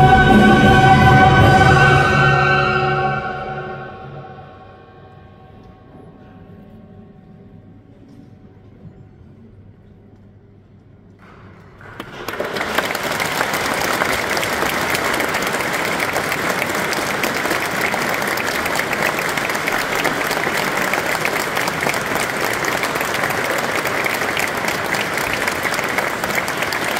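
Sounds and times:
audience applauding: 11.2 - 26.9.

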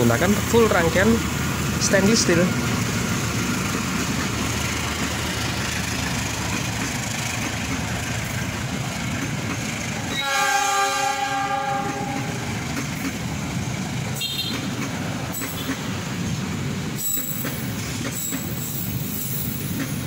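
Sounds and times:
wheels rumbling on rail: 0.0 - 20.0
train horn: 10.1 - 12.4.

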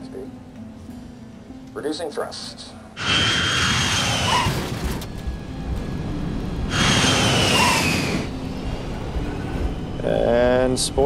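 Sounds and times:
jet airliner rushing past: 3.0 - 10.3
high jet engine whine: 3.0 - 11.0.

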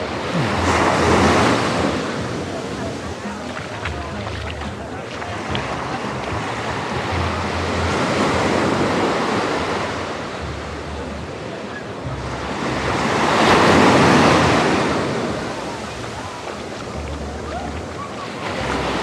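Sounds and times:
small waves breaking on sand: 0.0 - 19.0.

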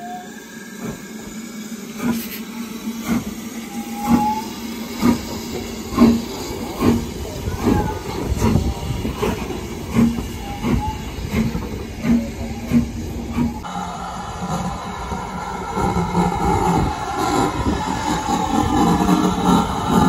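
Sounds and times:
faint squeal: 0.0 - 1.6, 3.4 - 5.0, 10.2 - 11.4
hiss of steam: 0.0 - 20.0
steam locomotive passing slowly: 0.0 - 20.0.

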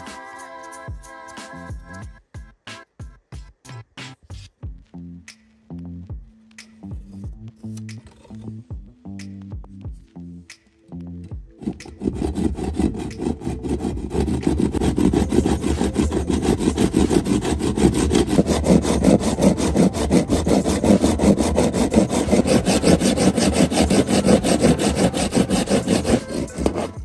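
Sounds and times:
hand saw cutting wood: 11.5 - 27.0.

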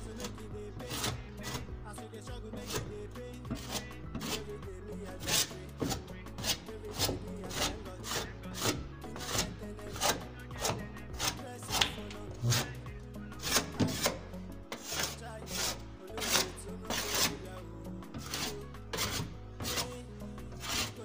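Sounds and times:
background music: 0.0 - 21.0
trowel scraping wet plaster: 0.0 - 21.0.

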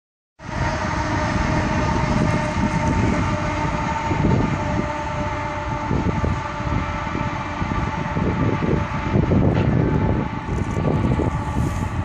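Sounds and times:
diesel locomotives rumbling: 0.4 - 12.0
hopper cars rolling and rattling: 0.4 - 12.0
steady whine: 0.4 - 12.0.

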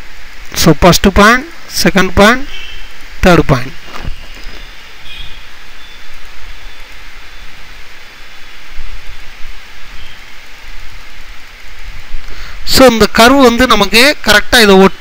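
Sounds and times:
steady hiss: 0.0 - 15.0
narrator speaking: 0.5 - 2.5, 3.2 - 3.9, 12.6 - 15.0.

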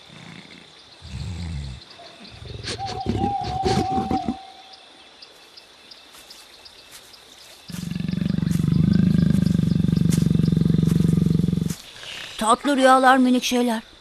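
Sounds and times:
cartoon jaguar growling: 7.7 - 11.8.

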